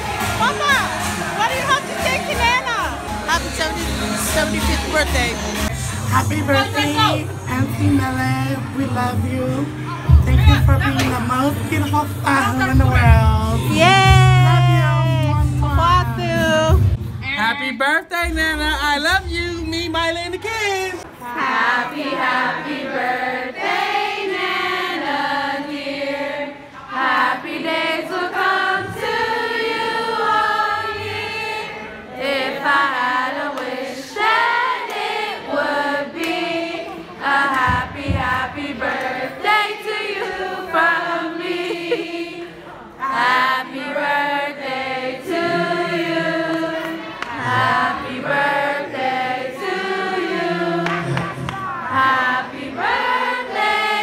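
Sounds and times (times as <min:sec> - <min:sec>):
group of people singing in chorus: 0:21.0 - 0:54.0.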